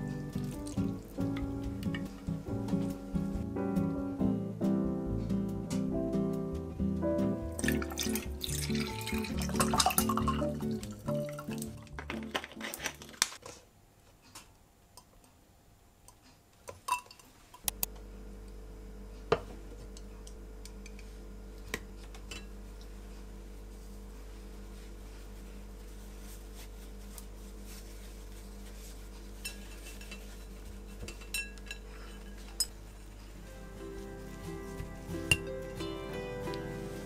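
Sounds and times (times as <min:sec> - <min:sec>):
steady low hum: 0:17.6 - 0:37.0.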